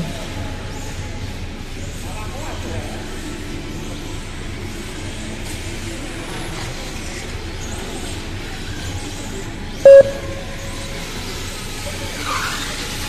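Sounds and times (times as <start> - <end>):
short loud beep: 9.9 - 10.8
rc cars running: 11.3 - 13.0.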